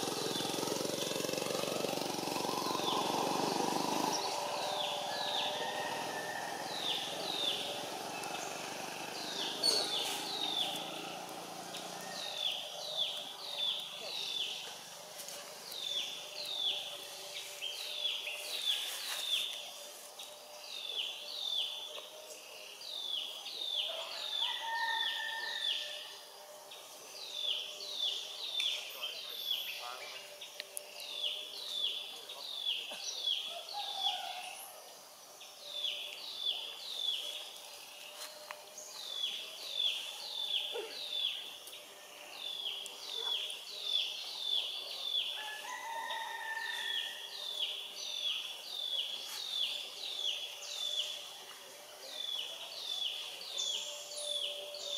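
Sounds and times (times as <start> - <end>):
bird calling: 0.0 - 14.4
faint calls of other birds: 0.0 - 54.9.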